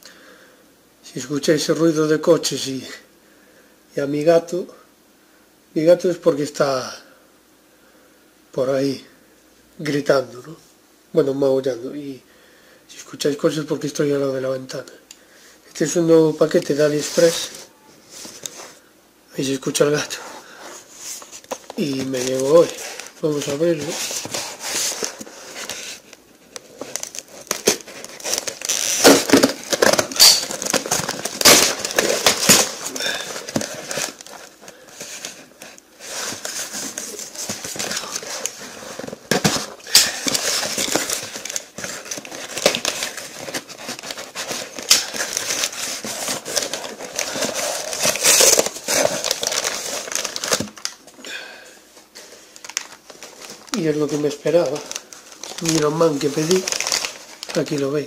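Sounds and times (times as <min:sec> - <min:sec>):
parcel wrapping crinkling and ripping: 0:20.0 - 0:51.1, 0:52.0 - 0:58.0.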